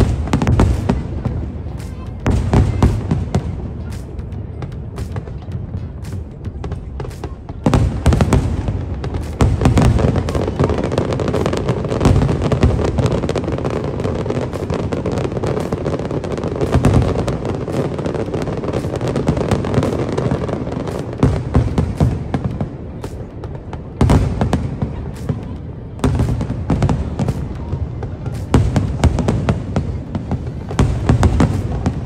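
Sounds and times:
fireworks bangs: 0.0s - 32.0s
fireworks crackling: 0.0s - 32.0s.

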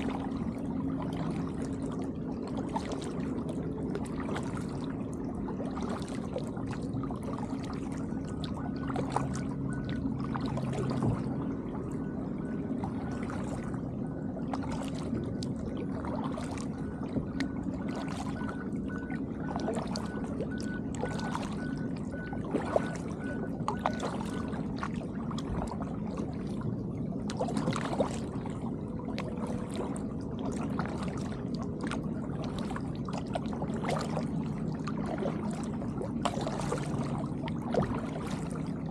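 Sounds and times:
paddle splashing in water: 0.0s - 38.9s
steady low hum: 0.0s - 38.9s.

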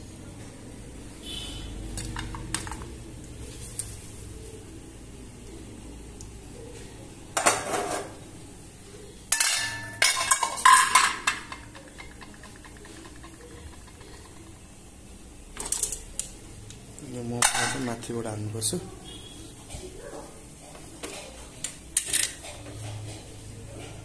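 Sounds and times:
dishes and utensils clattering: 7.3s - 8.2s, 9.3s - 14.7s, 15.6s - 16.1s, 17.4s - 18.0s, 19.7s - 24.0s.

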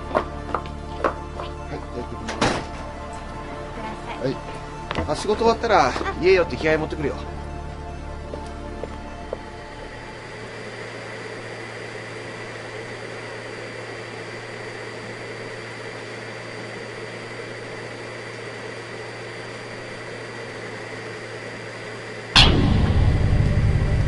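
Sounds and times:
vacuum cleaner running: 0.0s - 22.4s.

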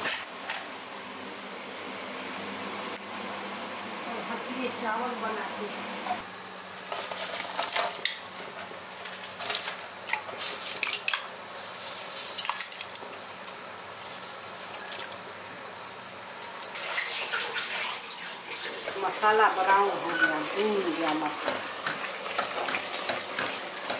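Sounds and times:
metal utensils clinking on pot: 20.0s - 23.9s.

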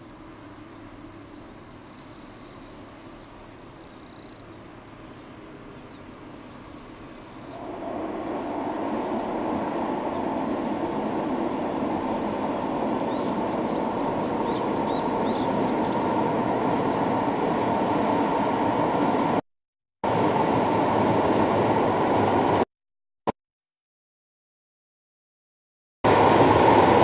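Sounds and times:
train rumbling over steel bridge: 6.2s - 19.4s, 20.0s - 22.6s, 26.1s - 27.0s.

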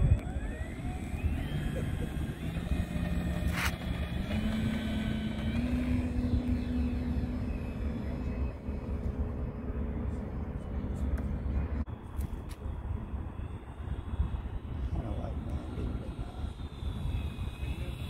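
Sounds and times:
model plane motor whining: 0.0s - 9.4s.

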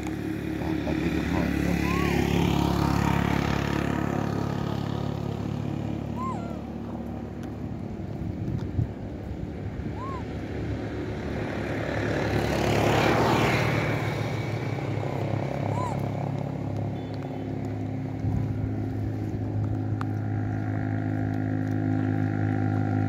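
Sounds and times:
vehicle engine running: 0.0s - 23.0s.

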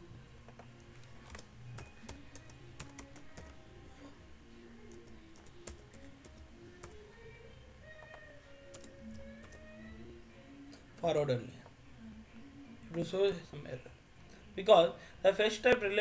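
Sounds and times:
computer keyboard typing: 0.5s - 3.6s, 4.8s - 7.0s, 8.0s - 9.7s.

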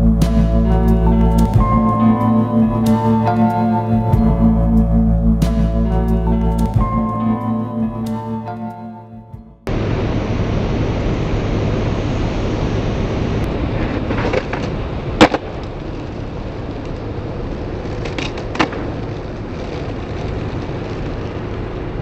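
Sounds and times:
skateboard wheels rolling on asphalt: 13.3s - 22.0s
skateboard cracking on pavement: 13.6s - 22.0s.

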